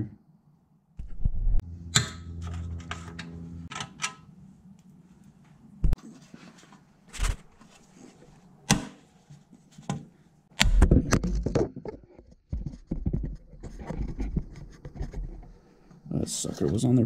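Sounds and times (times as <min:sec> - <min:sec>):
rustling and knocking: 0:10.9 - 0:15.5.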